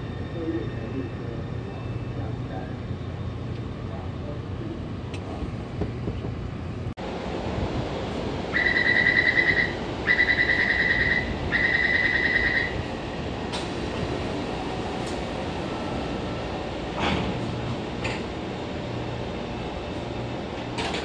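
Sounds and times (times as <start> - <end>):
train humming at platform: 0.0 - 21.0
pulsing warning beeps: 8.6 - 12.8.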